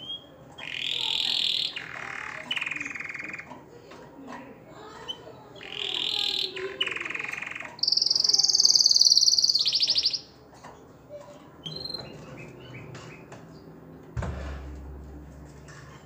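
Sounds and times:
canary singing trills: 0.0 - 3.8, 4.5 - 10.4, 11.6 - 13.7
sharp knock: 14.2 - 15.1.

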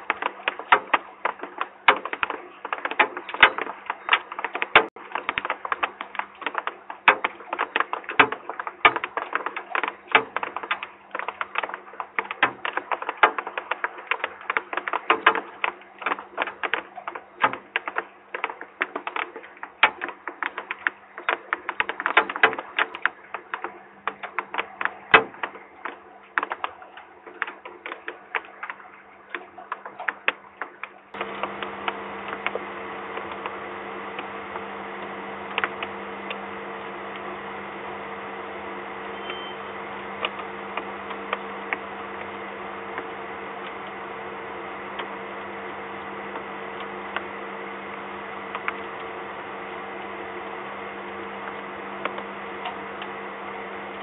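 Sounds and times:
rain tapping on wooden box: 0.0 - 54.0
steady low hum: 31.1 - 54.0.

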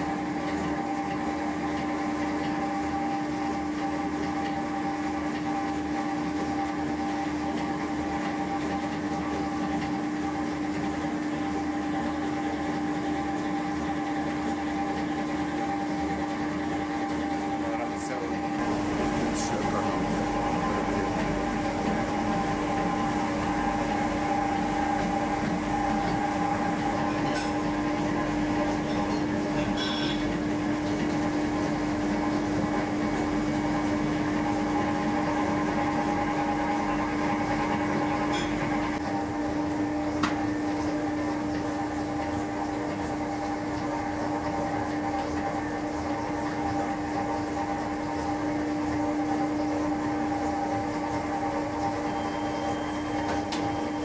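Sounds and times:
machinery humming: 8.4 - 42.8.

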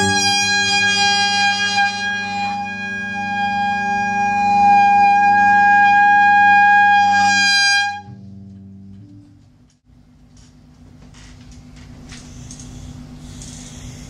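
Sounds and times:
wind instrument long note: 0.0 - 8.2.

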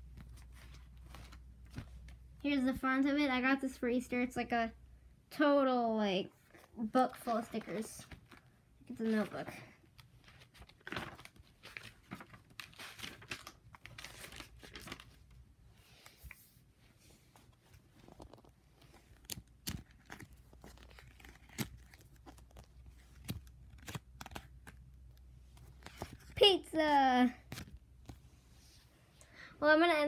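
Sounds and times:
paper stickers rustling: 18.0 - 26.4.

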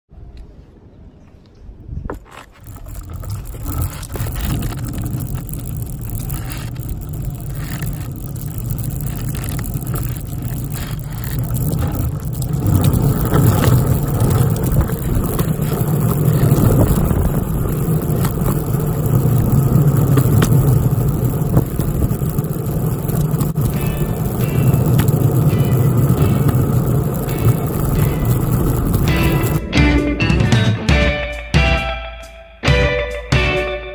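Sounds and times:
skateboard wheels rolling on asphalt: 1.3 - 29.6.

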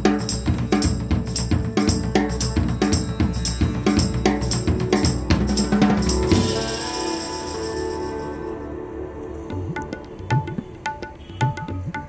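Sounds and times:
drum kit beat: 0.0 - 8.4
held chord ringing: 2.5 - 9.5.

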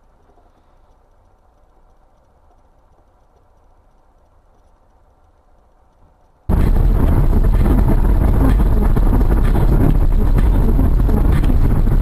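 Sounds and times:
car road and engine noise: 6.5 - 12.0.

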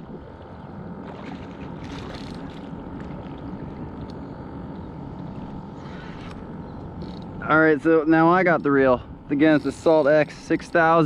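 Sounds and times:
water lapping against a board: 0.0 - 4.2.

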